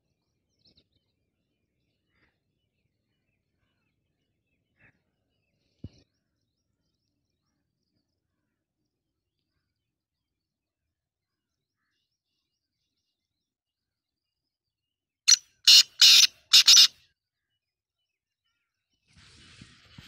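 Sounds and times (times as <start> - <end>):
francolin harsh call: 15.3 - 16.9.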